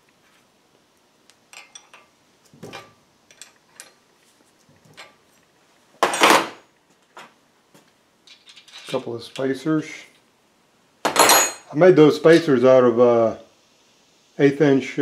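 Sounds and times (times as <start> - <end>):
wrench and nut clinking: 1.5 - 2.1, 2.7 - 4.0, 8.3 - 9.5
metallic clatter: 8.2 - 9.5.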